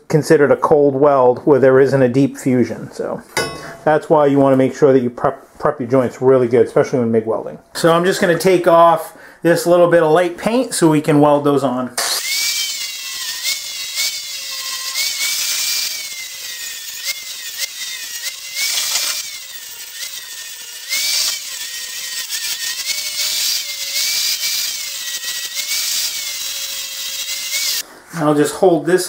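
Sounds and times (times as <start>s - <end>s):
angle grinder motor whine: 12.1s - 27.8s.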